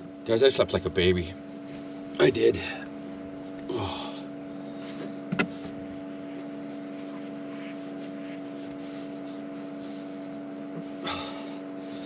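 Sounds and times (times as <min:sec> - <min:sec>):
electric fan humming: 0:00.0 - 0:12.0.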